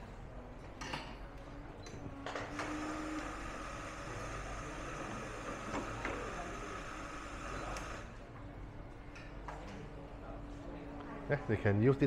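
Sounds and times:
espresso machine humming: 2.5 - 8.1.

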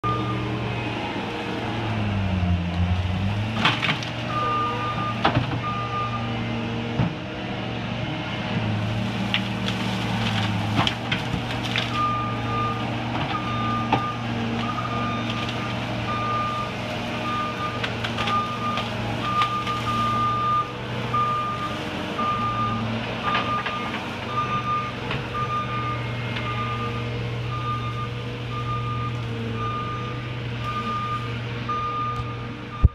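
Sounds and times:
reversing alarm beeping: 0.0 - 0.6, 4.3 - 6.4, 11.9 - 32.9
loader engine running under load: 0.0 - 32.9
sharp cracks and knocks: 3.6 - 4.2, 9.2 - 12.0.

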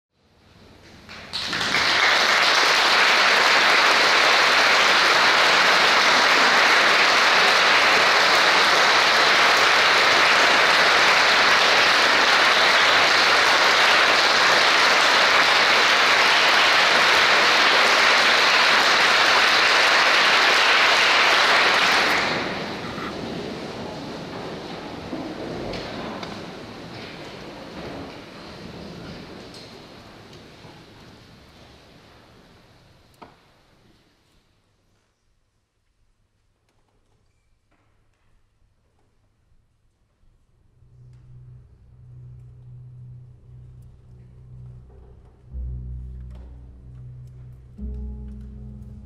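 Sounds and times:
audience applauding: 1.0 - 28.1.

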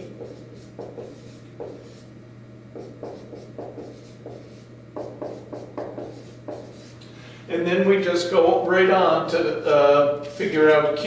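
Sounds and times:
marker writing on whiteboard: 0.0 - 2.1, 2.8 - 7.0.

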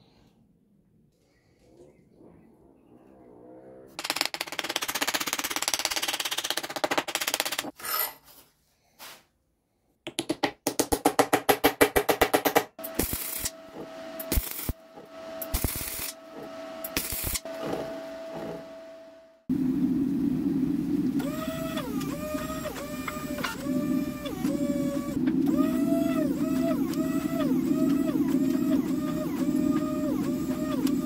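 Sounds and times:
welder sputtering and crackling: 4.0 - 7.7, 12.8 - 17.5, 21.0 - 31.0
steady hum: 13.1 - 31.0.

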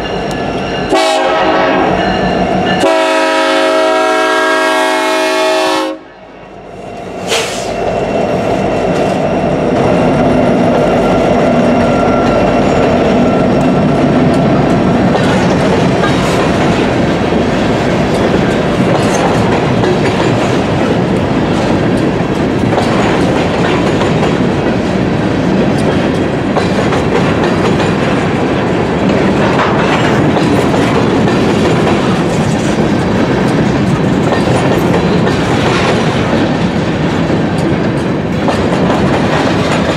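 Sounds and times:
freight train rumbling: 0.0 - 39.9
wheels clacking over rail joints: 8.8 - 39.9.

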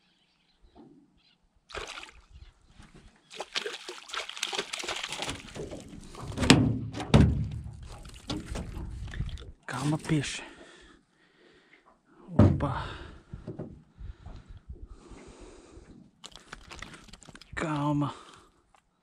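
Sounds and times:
fish splashing in water: 1.7 - 2.3, 3.3 - 6.5, 7.5 - 9.4, 16.2 - 17.5
heavy thumps: 5.6 - 9.1, 12.4 - 13.8.

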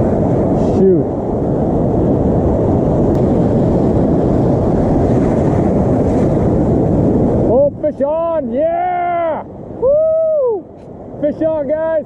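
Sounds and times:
surf breaking: 0.0 - 11.6
wind buffeting microphone: 0.0 - 12.0.

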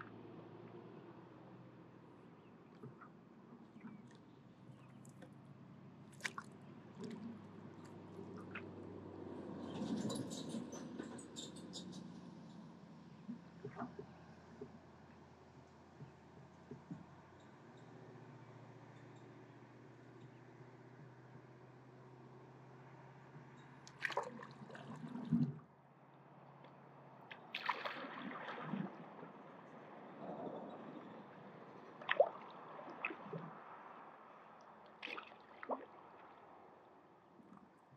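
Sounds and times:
paddle strokes splashing in water: 6.0 - 8.8, 23.9 - 25.6, 27.3 - 37.9
water dripping: 23.9 - 25.4, 32.0 - 33.5
paddle stroking through water: 23.9 - 25.6, 31.3 - 36.8.

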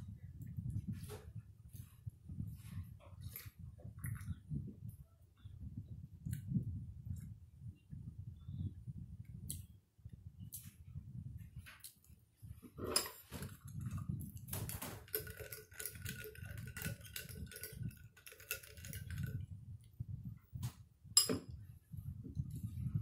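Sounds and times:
spoon clinking ice in glass: 14.7 - 19.4
glass and utensil clinks: 21.2 - 21.5.

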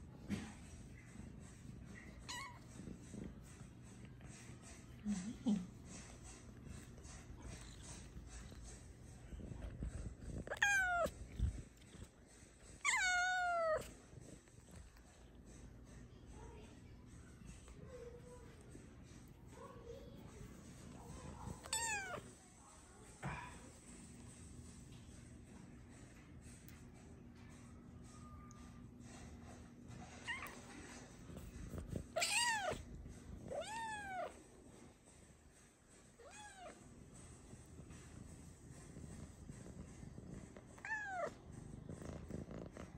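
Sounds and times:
cat chirping: 2.0 - 2.8, 10.2 - 12.1, 12.7 - 13.9, 21.5 - 22.2, 32.0 - 32.9, 33.5 - 34.4
cat meowing: 2.2 - 2.7, 10.4 - 11.4, 12.8 - 13.9, 21.5 - 22.2, 32.1 - 32.9, 33.5 - 34.4, 36.2 - 36.8, 40.8 - 41.4.

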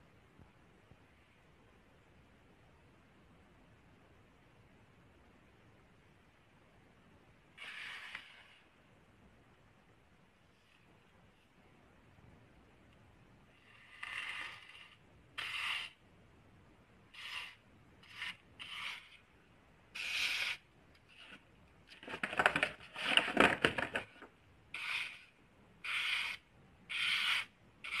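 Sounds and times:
crackling scrapes: 7.6 - 8.8, 13.5 - 16.0, 17.2 - 19.2.

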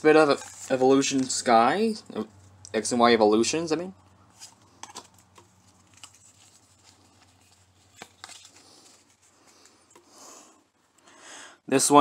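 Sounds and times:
trading cards being shuffled: 4.3 - 10.0.

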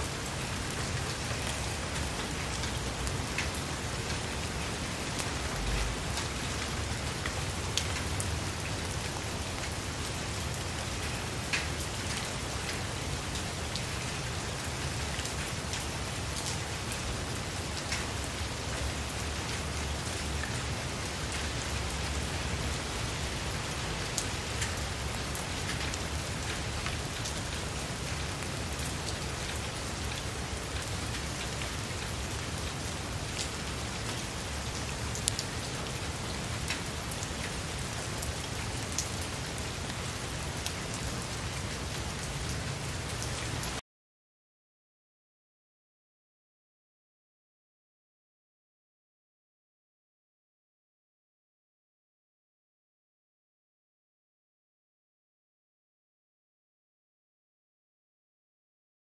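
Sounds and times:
rain falling on leaves: 0.0 - 43.8.

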